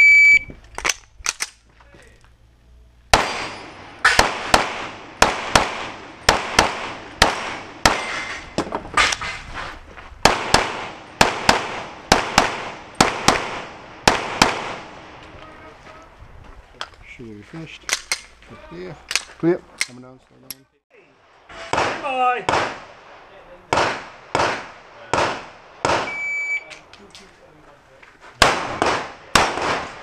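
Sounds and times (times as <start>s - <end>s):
pistol handling clicks: 0.7s - 1.6s, 17.9s - 18.4s, 19.1s - 20.6s
pistol shots with echo: 3.1s - 8.2s, 10.2s - 15.1s, 21.7s - 22.9s, 23.7s - 26.2s, 28.4s - 30.0s.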